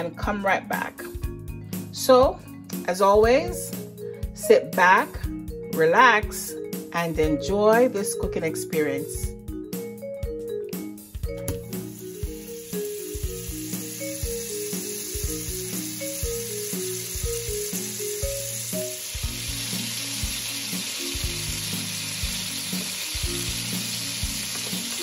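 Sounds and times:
background music with steady beat: 0:00.0 - 0:25.0
butter sizzling in a pot: 0:11.6 - 0:25.0.

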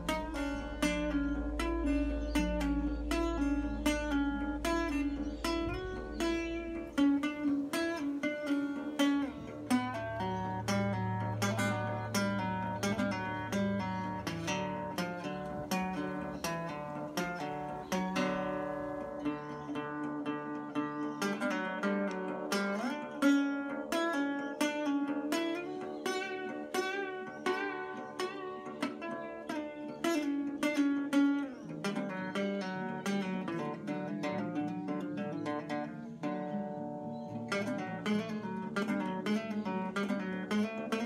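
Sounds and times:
acoustic guitar music: 0:00.0 - 0:41.0.

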